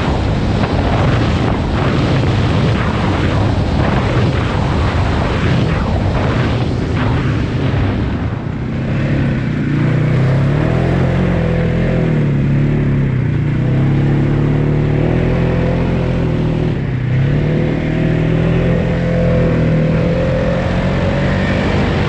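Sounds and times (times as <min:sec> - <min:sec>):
rushing noise: 0:00.0 - 0:22.0
atv engine revving: 0:06.1 - 0:22.0.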